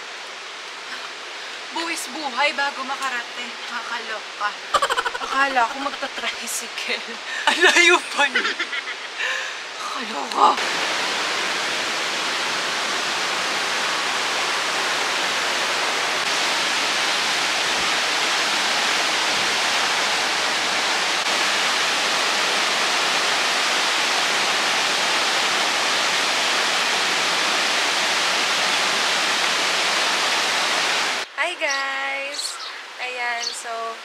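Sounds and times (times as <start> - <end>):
river water rushing through rapids: 7.2 - 31.3.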